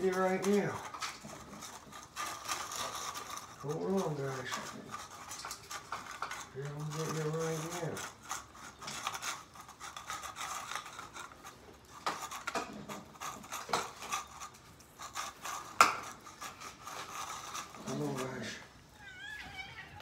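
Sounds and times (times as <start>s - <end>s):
metal cans scraping and clinking: 0.0s - 18.8s
cats eating: 0.0s - 20.0s.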